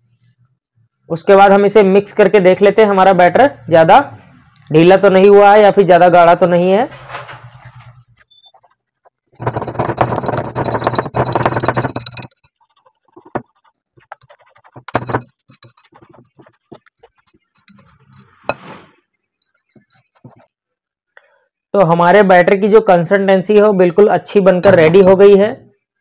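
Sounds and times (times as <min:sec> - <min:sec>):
whisk beating batter in glass bowl: 0:08.5 - 0:20.5.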